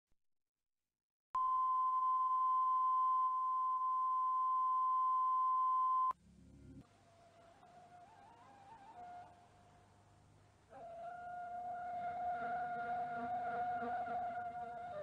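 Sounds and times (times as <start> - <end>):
steady sine reference tone: 1.4 - 6.8
faint low hum: 1.5 - 6.9.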